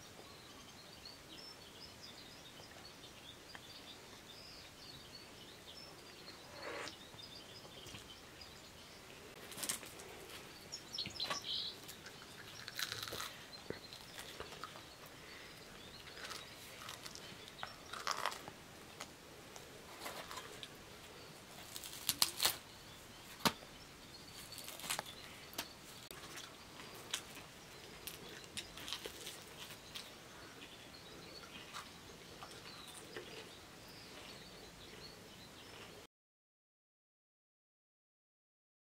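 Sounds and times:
faint bird chirps: 0.0 - 9.4.

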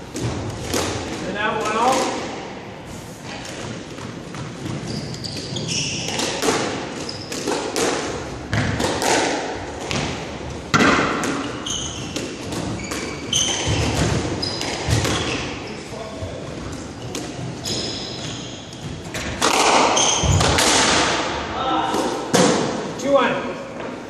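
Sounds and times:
squash ball smacking: 0.1 - 2.4, 3.3 - 15.4, 19.1 - 22.9
shoes squeaking on wooden floor: 4.3 - 7.6, 11.4 - 19.3, 19.9 - 20.6.

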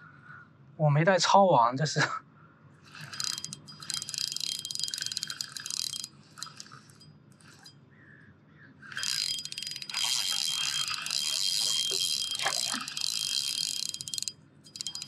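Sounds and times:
fishing reel ratcheting: 2.9 - 7.8, 8.9 - 15.0.

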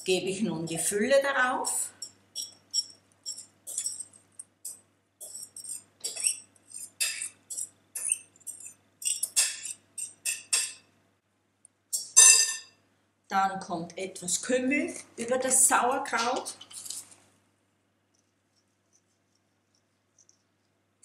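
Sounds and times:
spoon scraping glass bowl: 2.0 - 4.2, 5.2 - 10.8.

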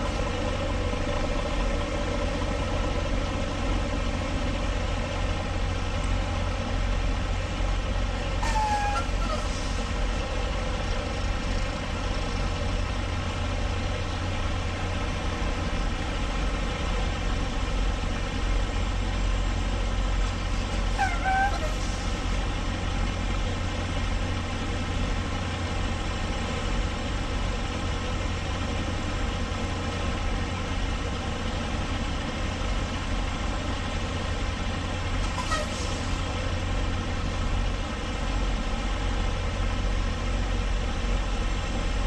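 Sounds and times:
diesel truck engine running: 0.0 - 42.0
brief high squeak: 8.4 - 9.6, 20.9 - 22.0, 35.2 - 36.0.

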